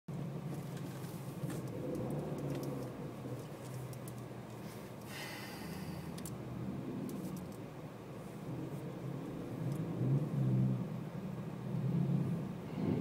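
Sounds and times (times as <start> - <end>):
car engine idling: 0.1 - 9.9
light clicks and rattles: 0.5 - 5.1, 7.1 - 7.6.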